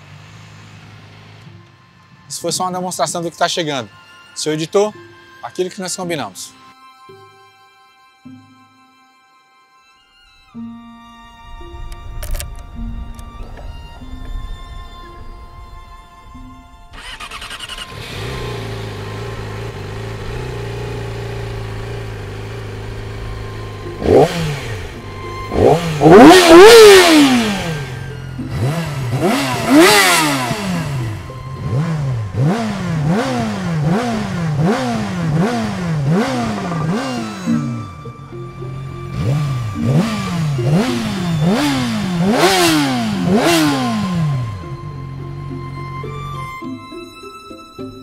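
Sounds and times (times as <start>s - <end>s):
motorcycle engine idling and revving: 0.0s - 2.2s, 16.9s - 46.5s.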